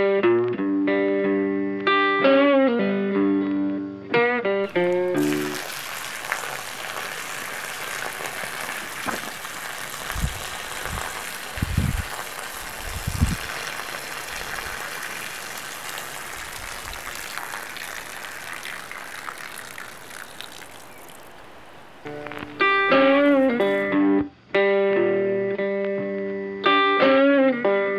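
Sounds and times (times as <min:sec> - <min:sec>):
water jet spattering on gravel: 0:04.7 - 0:23.8.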